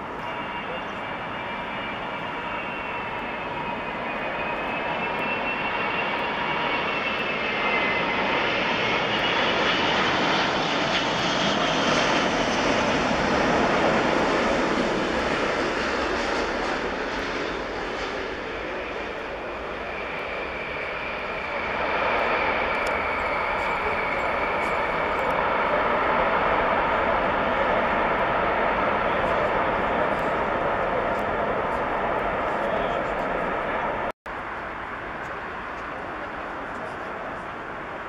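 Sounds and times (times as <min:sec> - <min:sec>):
high jet engine whine: 0:00.0 - 0:38.0
jet rumble: 0:00.0 - 0:38.0.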